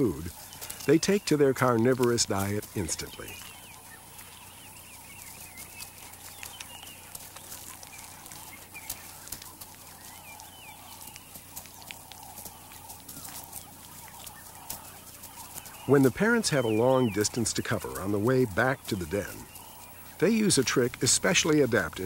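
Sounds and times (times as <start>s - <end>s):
pups squeaky calls: 0.0s - 22.0s.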